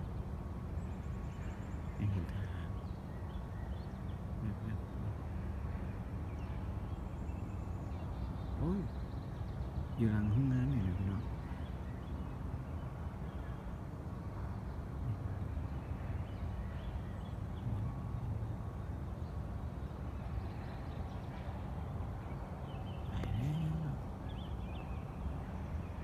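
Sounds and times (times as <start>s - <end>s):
faint scattered higher sounds: 0.0s - 26.0s
steady low rumble: 17.3s - 26.0s.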